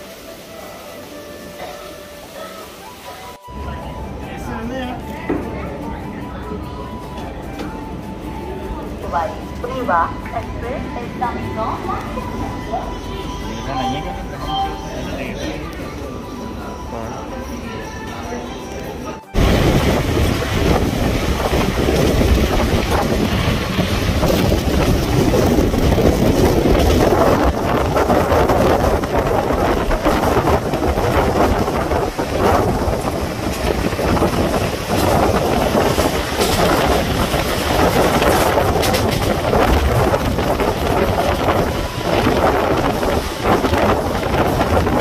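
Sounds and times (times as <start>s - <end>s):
train running rumble: 3.4s - 45.0s
wind rushing over microphone: 19.4s - 45.0s.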